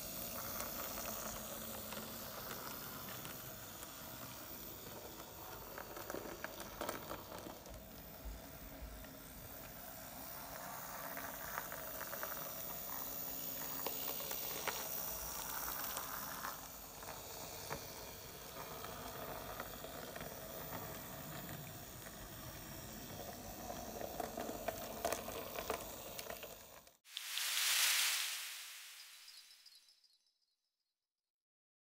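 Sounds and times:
model train rolling on track: 0.0s - 27.0s
loud hiss: 27.1s - 29.9s.

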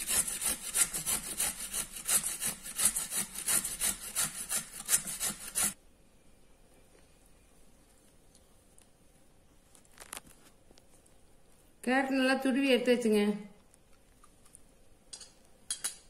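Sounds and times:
carrot grating on metal grater: 0.0s - 5.8s.

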